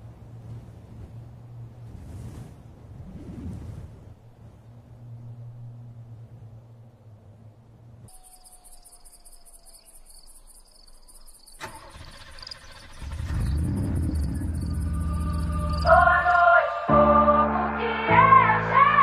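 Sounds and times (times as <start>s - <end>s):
insects chirring: 8.0s - 16.4s
deep rumble: 12.8s - 16.5s.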